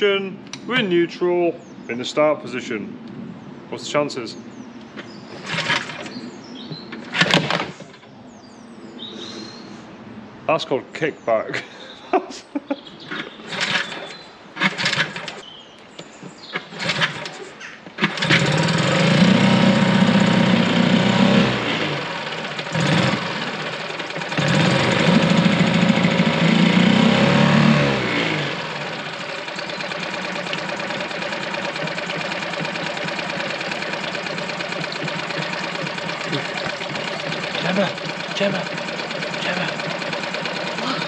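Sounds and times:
pull start: 0:05.4 - 0:06.2, 0:06.9 - 0:08.0, 0:13.1 - 0:15.4, 0:16.6 - 0:41.0
outboard motor running: 0:18.0 - 0:41.0.

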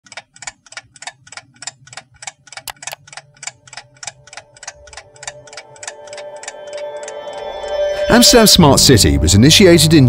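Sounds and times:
clock ticking: 0:00.0 - 0:07.8
sharp clicks: 0:00.1 - 0:07.4.

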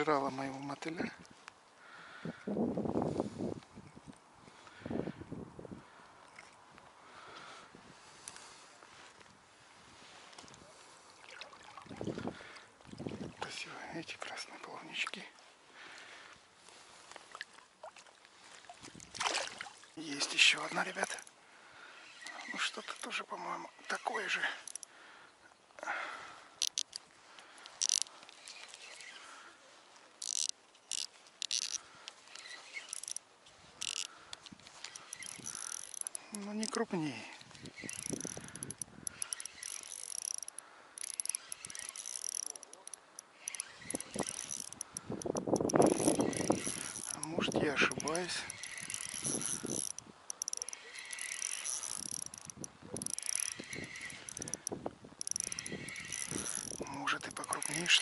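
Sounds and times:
fishing reel drag ratcheting: 0:20.0 - 0:25.0, 0:25.9 - 0:58.0.

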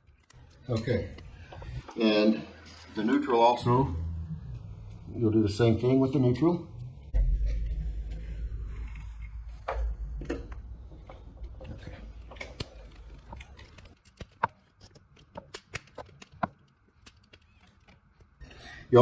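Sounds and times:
handling rumble: 0:03.4 - 0:14.0.

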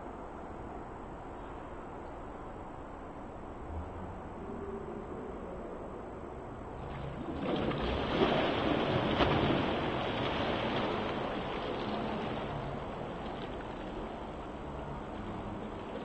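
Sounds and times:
swimmer splashing water: 0:06.8 - 0:16.0
sharp water slap: 0:07.3 - 0:12.1.

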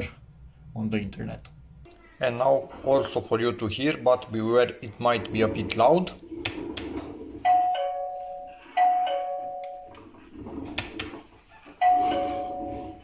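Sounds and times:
two-note doorbell chime: 0:07.5 - 0:09.9, 0:11.8 - 0:13.0.

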